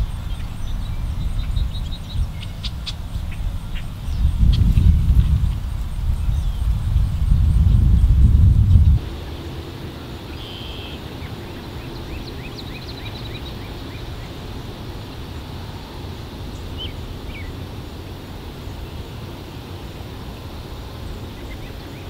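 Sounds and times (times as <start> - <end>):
birds chirping: 0.0 - 22.0
low outdoor rumble: 0.0 - 22.0.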